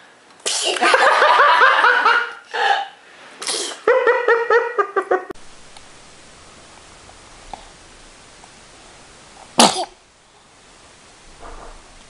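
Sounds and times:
baby sneezing: 0.4s - 0.8s, 3.4s - 3.9s, 9.6s - 10.0s.

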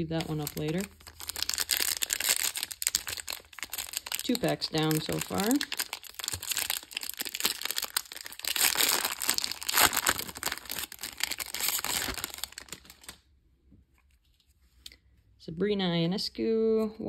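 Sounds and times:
foil wrapper tearing and crinkling: 0.0s - 13.2s.

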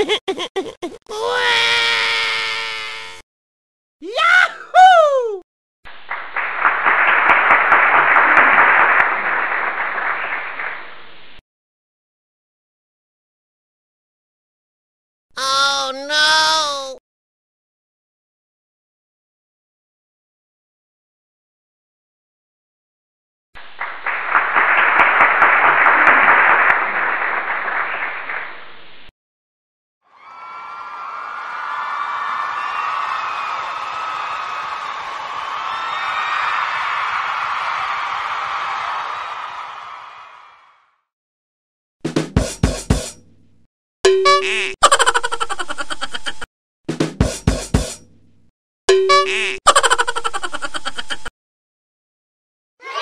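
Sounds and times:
crowd clapping: 5.9s - 11.1s, 23.6s - 28.8s, 30.2s - 40.8s
applause: 5.9s - 11.2s, 23.6s - 28.9s, 30.1s - 41.0s.

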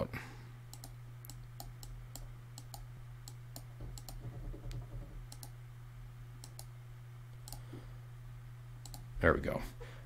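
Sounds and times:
steady low hum: 0.0s - 10.0s
computer mouse clicking: 0.7s - 5.6s, 6.4s - 6.7s, 7.4s - 7.7s, 8.8s - 9.1s.

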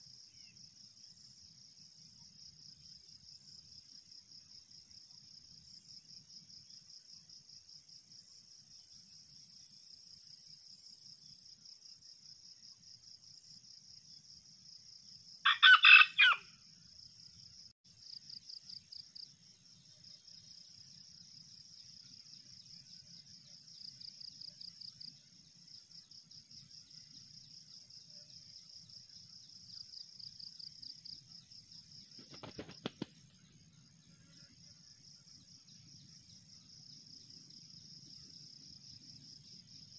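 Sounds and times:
insects chirring: 15.4s - 39.9s
rooster crowing: 15.5s - 16.5s.

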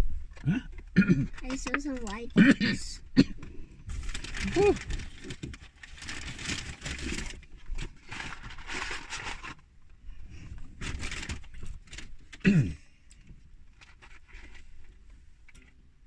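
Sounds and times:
paper wrapper rustling: 1.3s - 2.4s, 3.9s - 12.4s, 13.7s - 15.7s.

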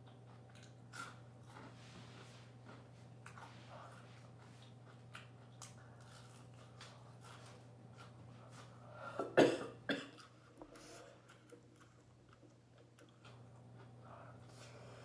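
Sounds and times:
woman coughing: 9.2s - 10.2s.

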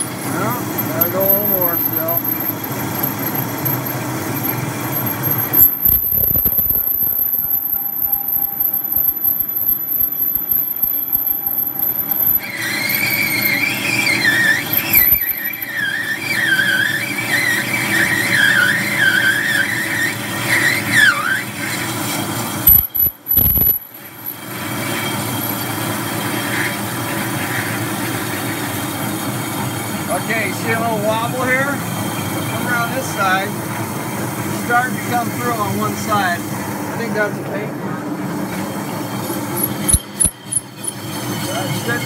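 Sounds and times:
metal lathe running: 0.0s - 20.6s, 30.8s - 42.0s
cutting tool squealing: 0.0s - 22.0s, 22.6s - 23.9s, 38.6s - 42.0s.

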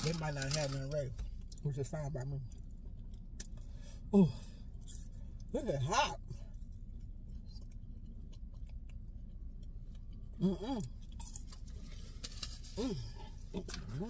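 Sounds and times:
person chewing fries: 0.0s - 14.0s
steady low hum: 0.0s - 14.0s
person humming mm: 10.4s - 10.9s.

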